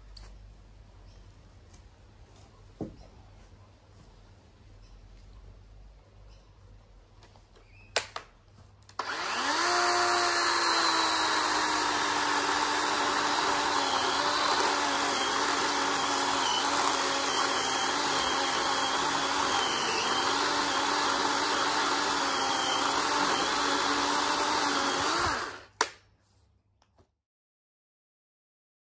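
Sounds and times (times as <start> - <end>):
chainsaw cutting branch: 8.9 - 25.8.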